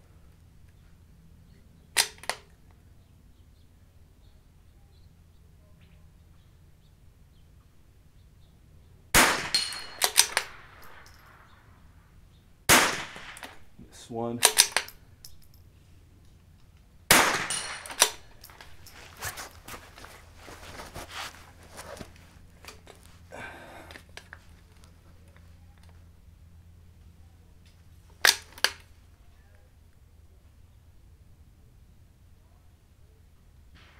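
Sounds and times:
handling clicks: 2.0s - 2.8s, 9.5s - 11.3s, 14.4s - 15.6s, 16.2s - 21.0s, 28.1s - 28.9s
rifle shots: 9.1s - 11.6s, 12.7s - 15.0s, 17.1s - 18.9s
metallic clicks and clanks: 9.5s - 11.4s, 14.4s - 15.6s, 17.4s - 19.7s.

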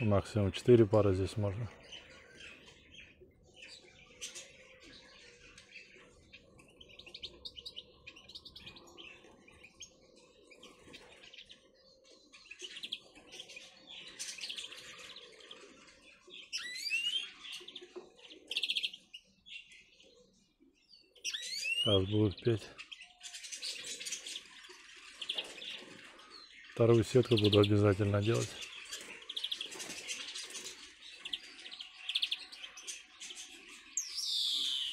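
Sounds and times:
finches chirping and twittering: 0.0s - 34.9s
fast bird trill: 16.4s - 17.8s, 21.2s - 22.6s, 33.9s - 34.9s.

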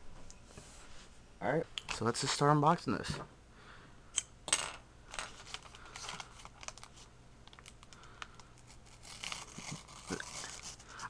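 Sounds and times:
paper envelope crinkling: 5.2s - 11.0s.

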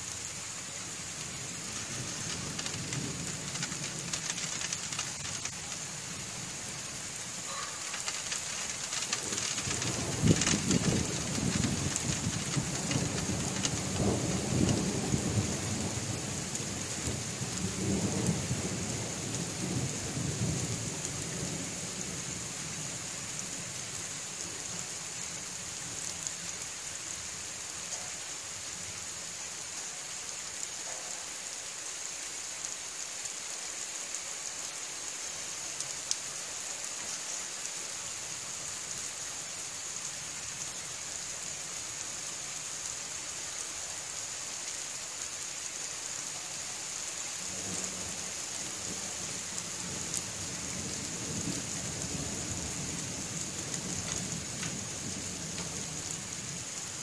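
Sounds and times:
rain falling: 0.0s - 57.0s
thunder rumbling: 1.2s - 21.2s.

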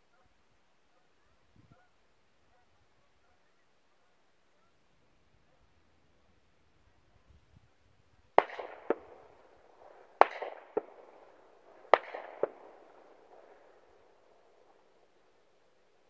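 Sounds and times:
distant gunshots with echo: 8.3s - 15.2s.

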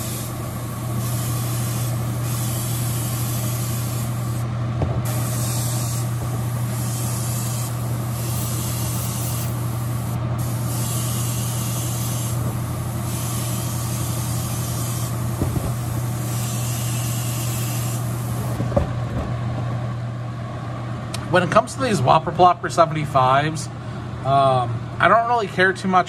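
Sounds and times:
airbrush spraying hiss: 0.0s - 4.4s, 5.0s - 18.6s
steady low hum: 0.0s - 26.0s.

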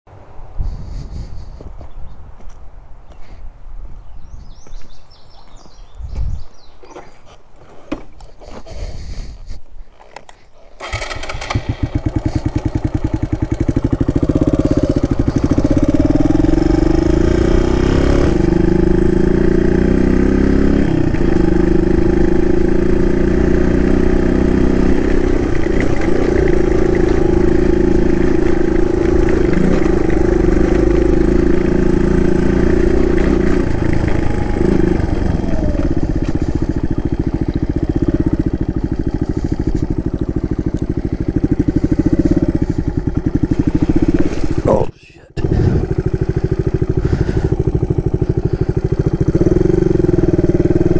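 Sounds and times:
motorcycle engine running: 10.8s - 50.9s.

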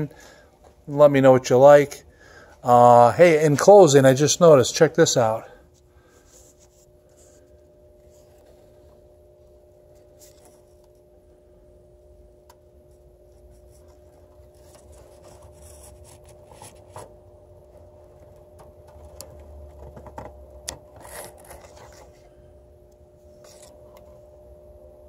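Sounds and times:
steady hum: 0.0s - 25.0s
faint rubbing and scratching: 6.0s - 8.9s, 13.3s - 17.2s, 21.0s - 22.4s.

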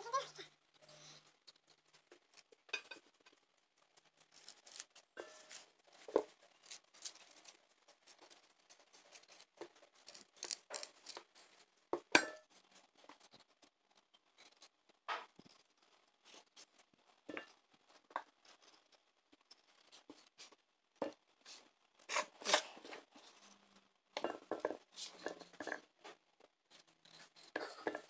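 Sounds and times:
knife peeling and cutting squash: 1.8s - 23.5s
knife clinking against steel bowl: 12.2s - 12.5s.

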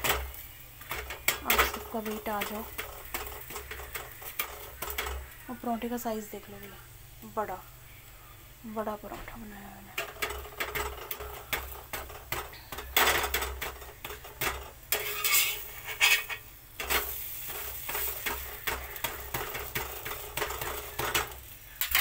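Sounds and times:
metal spatula scraping griddle: 0.0s - 5.3s, 10.0s - 22.0s
spatula clicking: 0.0s - 5.4s, 10.0s - 22.0s
flatbread sizzling: 0.0s - 22.0s.

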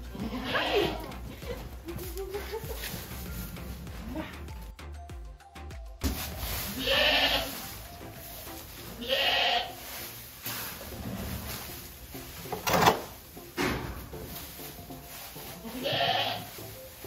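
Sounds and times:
goat bleating: 0.0s - 1.2s, 6.7s - 7.6s, 9.0s - 9.8s, 15.6s - 16.6s.

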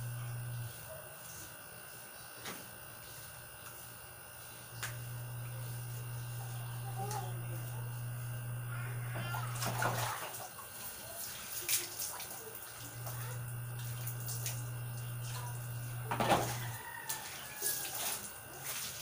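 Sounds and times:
steady low hum: 0.0s - 1.1s, 3.0s - 10.3s, 12.8s - 16.8s
water splashing onto concrete floor: 9.5s - 13.2s, 16.2s - 19.0s.

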